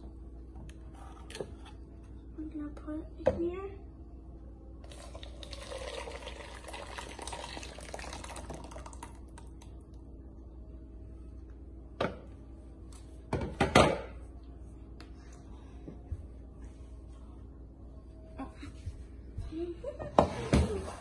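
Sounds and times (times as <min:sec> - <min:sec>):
thick puree pouring into pot: 0:04.8 - 0:09.6.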